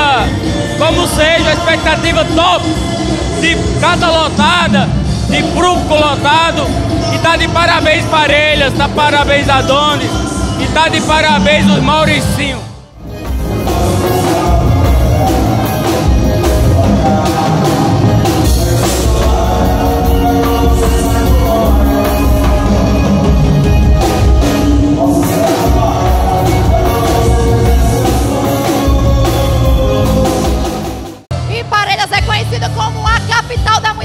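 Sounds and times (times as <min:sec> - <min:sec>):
person singing: 0:13.0 - 0:31.1
bass drum beat: 0:13.0 - 0:31.3.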